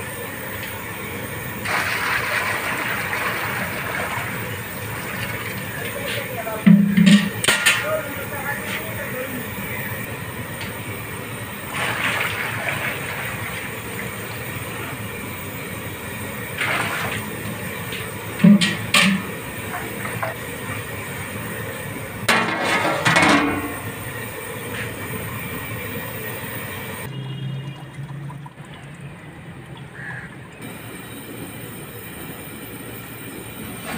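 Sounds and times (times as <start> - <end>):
metal lid clattering on pot: 6.7 - 7.9, 18.4 - 19.3, 22.3 - 23.9.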